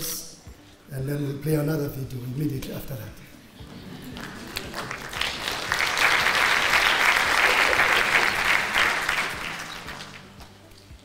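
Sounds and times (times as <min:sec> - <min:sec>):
audience applauding: 0:03.6 - 0:10.6.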